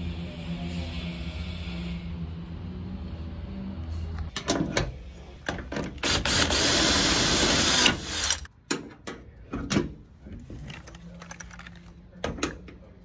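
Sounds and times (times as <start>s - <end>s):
harsh mechanical noise: 4.9s - 8.5s.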